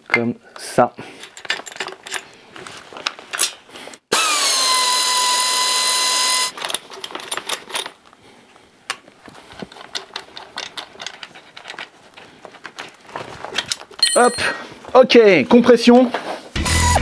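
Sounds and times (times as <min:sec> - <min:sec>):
metal tools clinking: 0:14.0 - 0:14.6.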